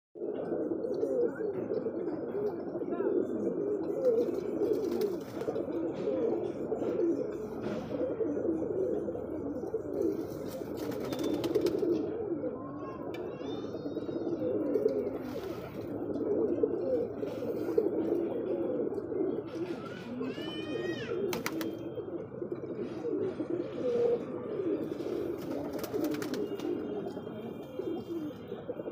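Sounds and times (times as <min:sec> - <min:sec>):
pigeons cooing: 0:00.2 - 0:28.9.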